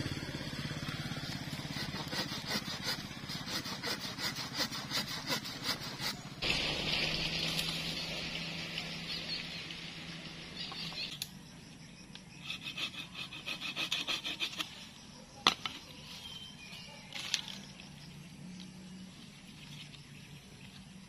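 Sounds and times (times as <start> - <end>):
woody branches rubbing and rasping: 1.3 - 6.4, 12.4 - 14.8.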